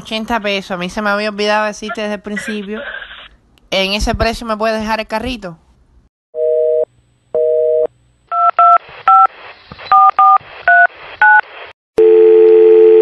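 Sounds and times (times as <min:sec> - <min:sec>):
steady telephone line tone: 0:06.4 - 0:09.3, 0:12.0 - 0:13.0
telephone beep: 0:09.9 - 0:11.4.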